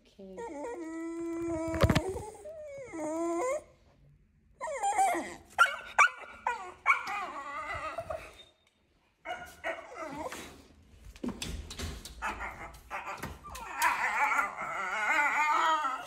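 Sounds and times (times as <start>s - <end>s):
dog howling and whining: 4.6s - 8.6s, 12.2s - 16.0s
dog yips: 4.6s - 8.6s.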